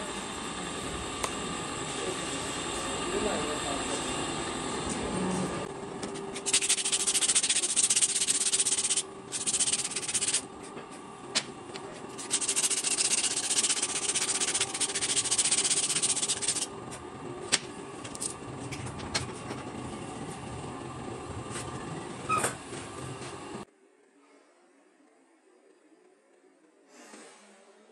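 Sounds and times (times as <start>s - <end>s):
sandpaper rubbing back and forth: 6.3s - 10.5s, 12.1s - 16.7s.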